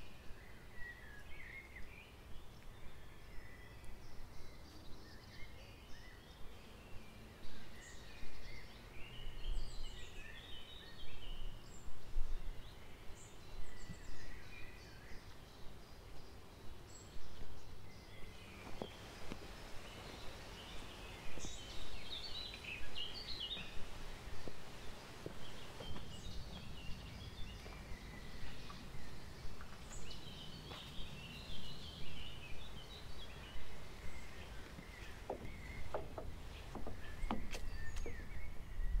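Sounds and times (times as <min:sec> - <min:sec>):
songbirds singing: 0:00.0 - 0:39.0
footsteps thudding: 0:34.7 - 0:38.2.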